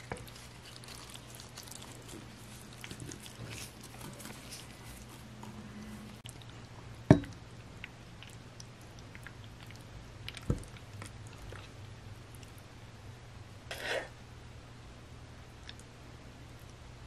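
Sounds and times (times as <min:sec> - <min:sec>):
wet noodle squishing: 0:00.0 - 0:12.7.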